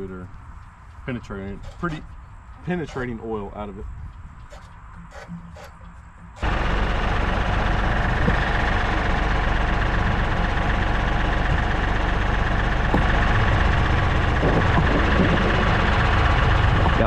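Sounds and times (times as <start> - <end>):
tractor diesel engine idling: 0.0 - 17.0.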